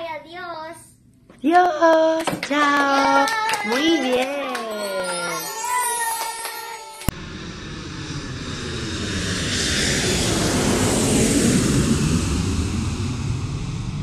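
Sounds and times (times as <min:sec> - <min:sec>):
airplane flying past: 0:07.1 - 0:14.0.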